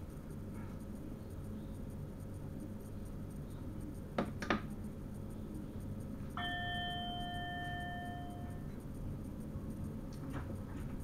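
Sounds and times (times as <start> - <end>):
low cab hum: 3.6 - 11.0
bell-like electronic chime: 6.4 - 8.7.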